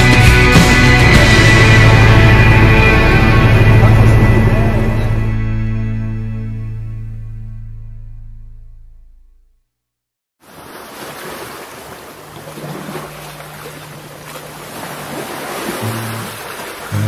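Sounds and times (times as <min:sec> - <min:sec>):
sea surf rushing: 0:10.4 - 0:17.0
wind: 0:10.4 - 0:17.0.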